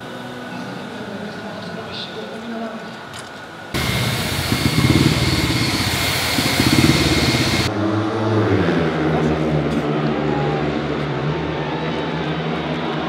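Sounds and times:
motorcycle engines running loud: 3.8 - 7.8.

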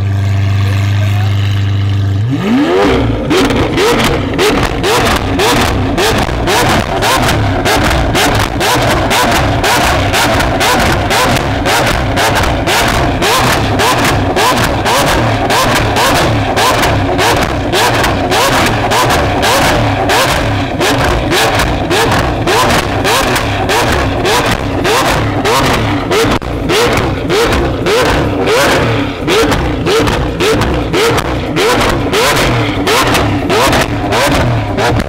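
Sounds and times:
car engine revving: 0.0 - 35.0
exhaust popping and crackling: 0.0 - 35.0.

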